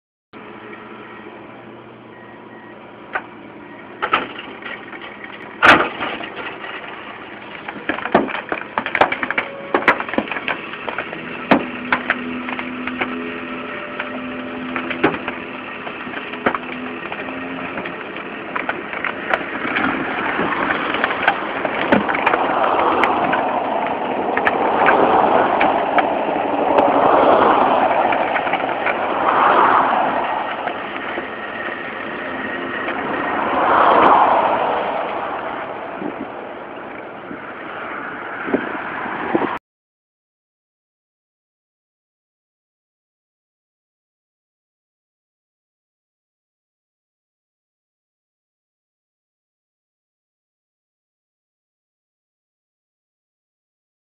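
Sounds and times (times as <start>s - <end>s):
rough wavering noise: 22.4s - 39.3s.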